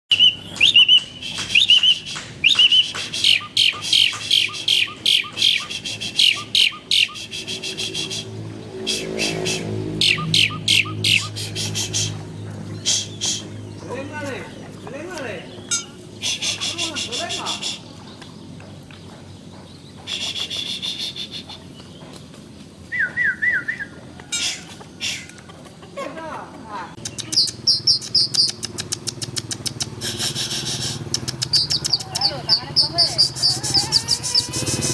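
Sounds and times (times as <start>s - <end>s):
bird whistled notes: 0.1s - 8.3s, 8.9s - 12.1s, 20.1s - 21.6s, 22.9s - 25.3s, 30.0s - 34.9s
repeated downward-sliding bird notes: 0.1s - 18.6s
starling chirps and trills: 0.1s - 18.6s, 19.6s - 22.2s, 23.6s - 25.7s, 27.0s - 34.9s
starling rattling chatter: 30.8s - 34.9s.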